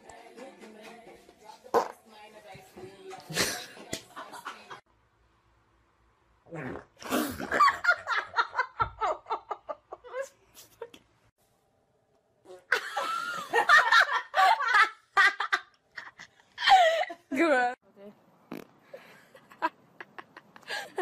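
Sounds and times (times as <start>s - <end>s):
woman laughing hard: 12.7s - 17.2s.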